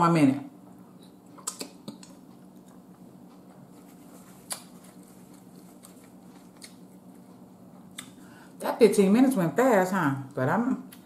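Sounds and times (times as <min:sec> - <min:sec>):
steady low hum: 0:00.0 - 0:11.0
wet mouth clicks and smacks: 0:01.4 - 0:02.8, 0:04.4 - 0:04.8.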